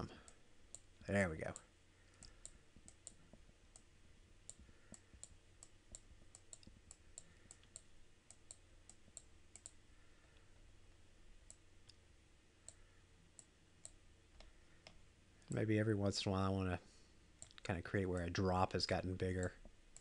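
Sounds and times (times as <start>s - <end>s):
low steady hum: 0.0s - 20.0s
computer mouse clicks: 4.5s - 9.8s.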